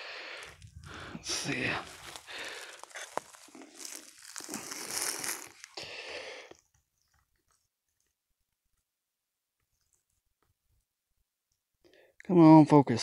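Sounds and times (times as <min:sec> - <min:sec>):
handling noise rustling and crunching: 0:00.4 - 0:05.8.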